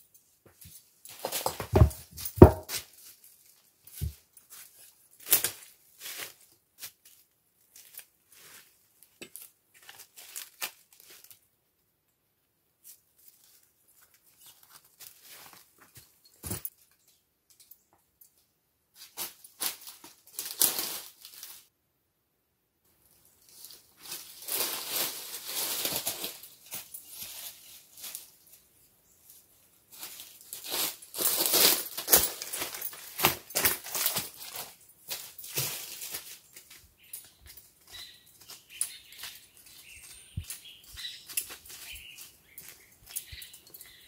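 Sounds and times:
dry leaves crunching underfoot: 1.1s - 8.8s, 9.4s - 11.4s, 19.0s - 21.7s, 23.3s - 28.6s, 29.3s - 44.0s.

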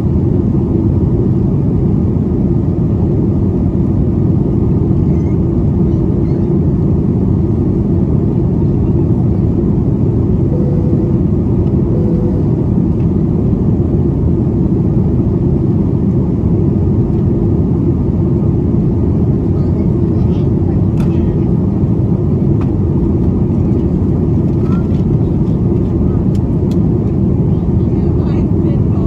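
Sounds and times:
airplane cabin engine rumble: 0.0s - 29.0s
faint steady hum: 8.8s - 13.8s.

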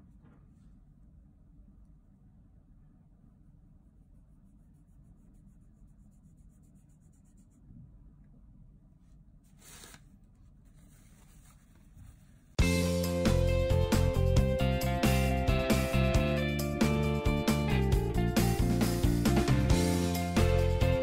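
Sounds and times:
brush scratching on paper: 3.9s - 7.7s, 9.4s - 12.6s
paper tissue rustling: 9.4s - 12.6s
guitar music: 12.6s - 21.0s.

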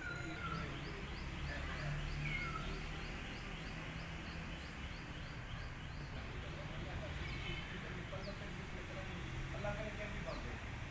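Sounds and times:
whistled bird calls: 2.1s - 3.4s.

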